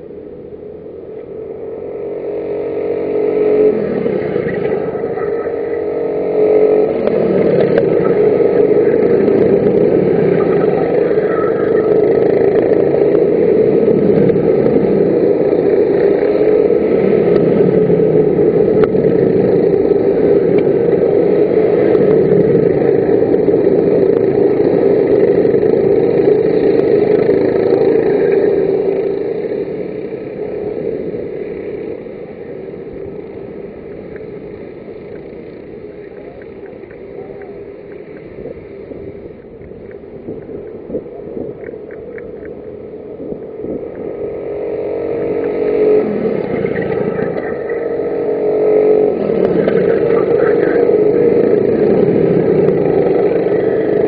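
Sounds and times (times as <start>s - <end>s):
racing kart engines: 0.0s - 54.0s.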